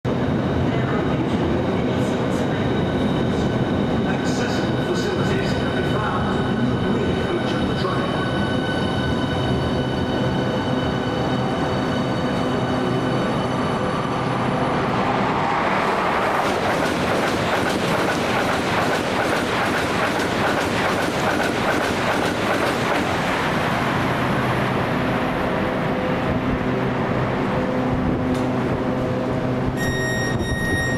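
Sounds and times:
wheels rushing on rail: 0.1s - 30.9s
train electric whine: 25.3s - 30.9s.

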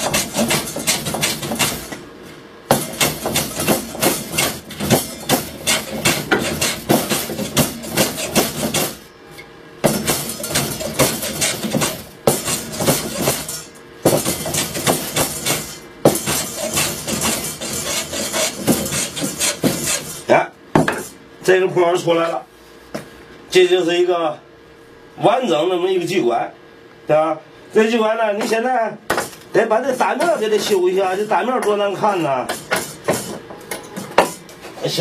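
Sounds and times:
hand plane shaving wood: 16.3s - 20.1s.

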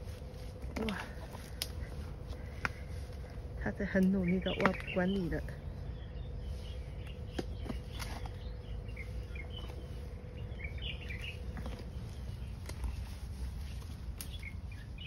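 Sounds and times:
low rumble: 0.0s - 15.0s
bird chirps: 3.7s - 13.4s, 14.2s - 15.0s.

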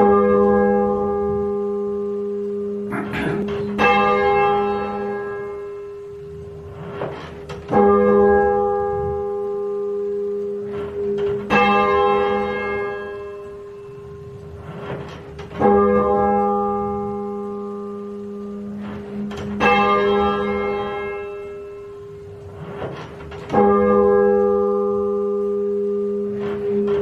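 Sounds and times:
muffled church bell tolling: 0.0s - 27.0s.

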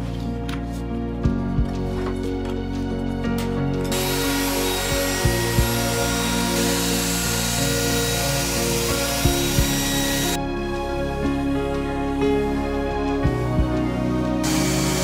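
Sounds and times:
electric router cutting wood: 3.9s - 10.4s, 14.4s - 15.0s.

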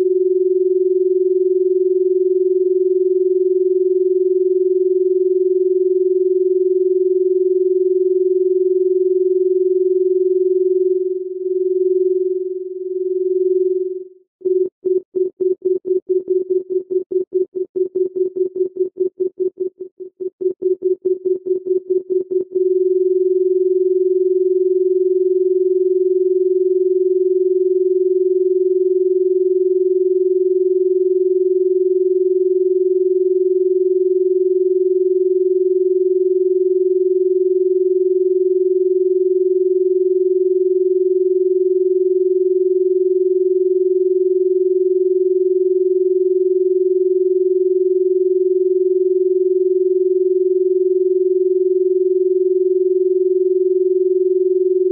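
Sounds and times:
low electronic tone: 6.4s - 36.3s.

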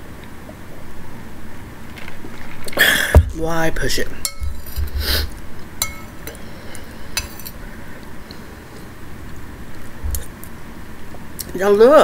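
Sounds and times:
metal spoon clinking bowl: 4.2s - 4.8s, 5.8s - 6.4s, 7.2s - 7.6s.

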